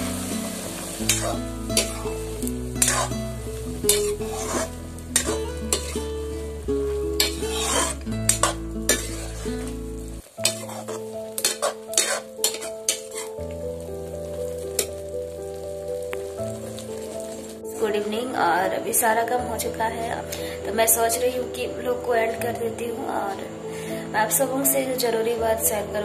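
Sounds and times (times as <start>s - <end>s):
vegetables sizzling in hot oil: 0.0s - 25.9s
spatula scraping against pan: 1.0s - 2.2s, 2.8s - 6.2s, 7.2s - 9.8s, 10.4s - 13.4s.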